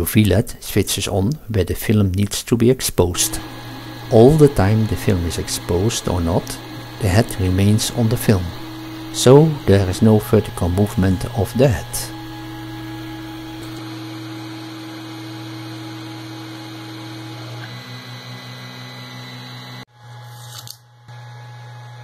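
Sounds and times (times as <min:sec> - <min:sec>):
faint steady hum: 0:02.9 - 0:13.8
printer stepper motors humming: 0:03.2 - 0:19.8.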